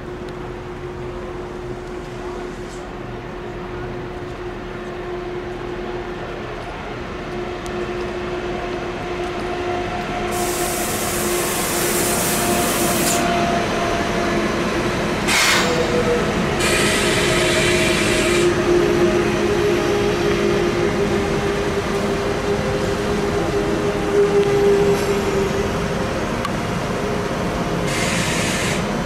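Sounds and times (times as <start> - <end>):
train running on track: 0.0 - 29.0
hiss: 10.3 - 13.2, 15.3 - 15.7, 16.6 - 18.5, 27.9 - 29.0.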